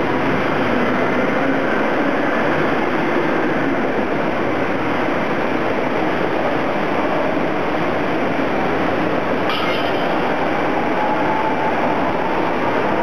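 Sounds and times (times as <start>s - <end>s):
industrial machinery din: 9.4s - 10.7s.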